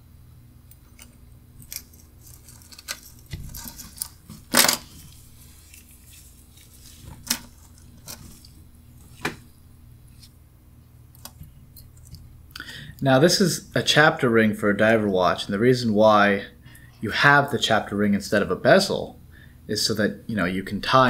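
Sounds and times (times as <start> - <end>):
rustling scrape: 1.6 - 9.4.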